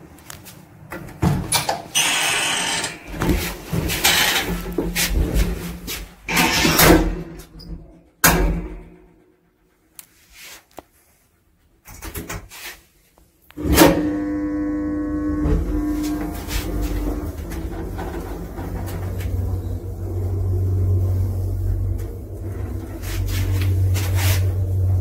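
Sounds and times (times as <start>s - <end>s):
lift doors shutting: 6.3s - 8.9s, 13.6s - 25.0s
lift drive humming: 13.6s - 25.0s.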